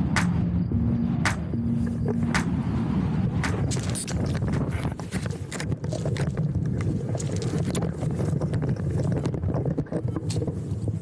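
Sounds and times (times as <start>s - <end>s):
wind rumbling on microphone: 0.0s - 11.0s
gear knocking on gravel: 3.4s - 10.6s.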